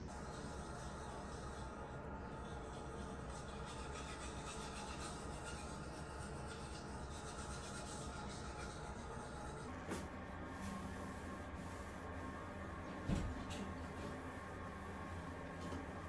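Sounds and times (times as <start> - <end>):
toothbrush scrubbing teeth: 0.1 - 9.7.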